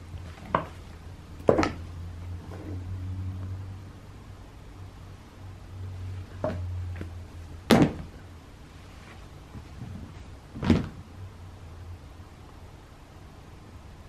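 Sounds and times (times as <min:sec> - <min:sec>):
low steady hum: 0:00.0 - 0:14.0
sharp knocks: 0:07.7 - 0:08.1.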